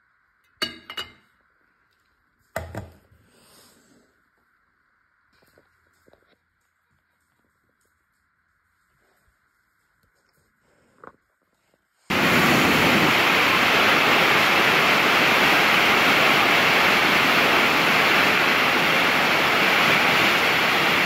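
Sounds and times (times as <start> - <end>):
waterfall rushing: 12.1 - 21.0.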